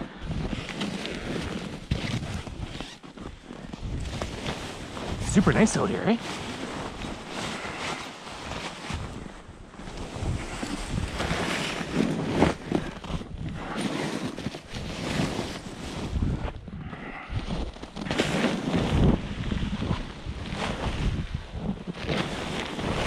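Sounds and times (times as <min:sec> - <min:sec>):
wind buffeting microphone: 0:18.8 - 0:22.0.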